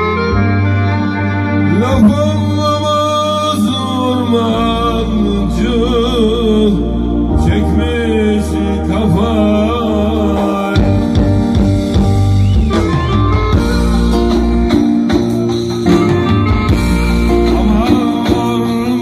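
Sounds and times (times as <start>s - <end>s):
electronic keyboard accompaniment: 0.0s - 19.0s
man singing into a microphone: 1.6s - 11.4s, 17.1s - 19.0s.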